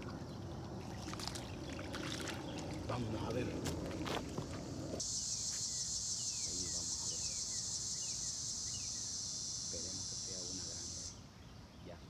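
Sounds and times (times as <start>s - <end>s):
high-pitched insect drone: 5.0s - 11.2s
bird chirping: 5.2s - 12.0s.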